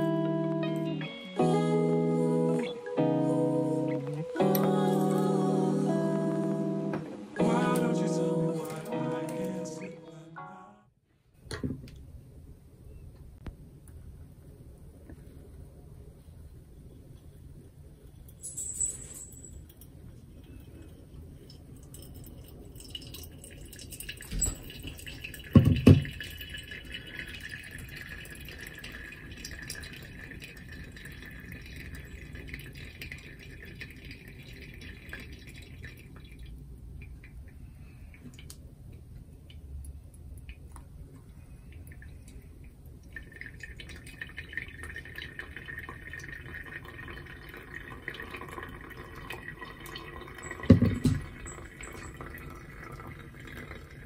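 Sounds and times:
coffee dripping: 19.5 - 54.0
water pouring onto coffee grounds: 20.3 - 37.2, 41.7 - 54.0.

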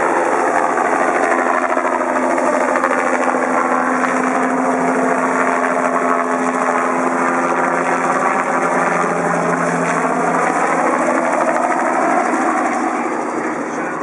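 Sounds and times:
helicopter flying past: 0.0 - 14.0.

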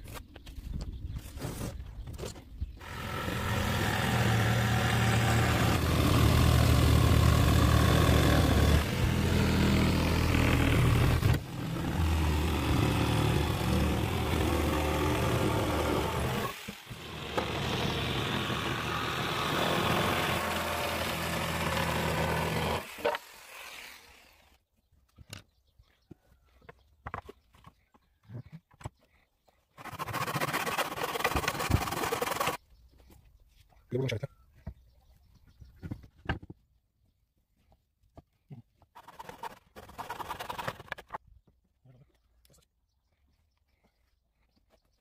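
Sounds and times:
jigsaw cutting wood: 2.8 - 24.6, 29.8 - 32.6, 39.0 - 41.2.

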